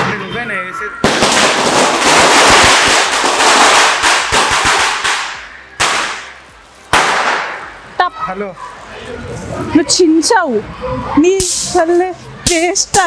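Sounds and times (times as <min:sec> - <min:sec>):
loud echoing bangs: 0:01.0 - 0:07.8
firecrackers crackling: 0:01.0 - 0:08.0, 0:11.3 - 0:13.0.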